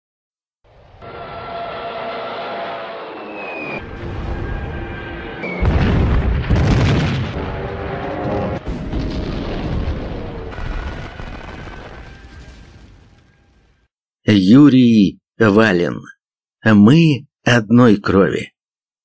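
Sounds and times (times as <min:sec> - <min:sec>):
heavy artillery booms: 0:03.8 - 0:13.5.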